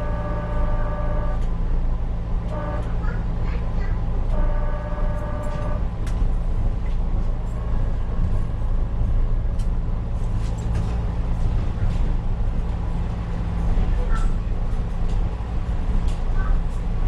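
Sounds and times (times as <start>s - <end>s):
train horn: 0.0s - 1.5s, 2.5s - 3.1s, 4.3s - 5.9s
light rail electric hum: 0.0s - 17.0s
wheels clicking on rails: 5.4s - 17.0s.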